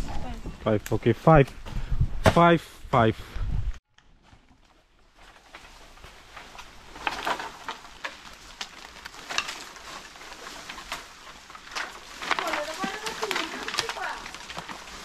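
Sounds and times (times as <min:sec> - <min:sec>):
dry bamboo leaves rustling: 0:04.0 - 0:15.0.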